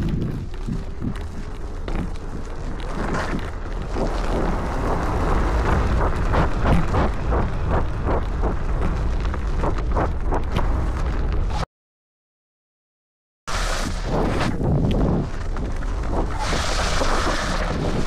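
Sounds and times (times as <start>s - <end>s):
wind buffeting microphone: 3.0s - 11.2s.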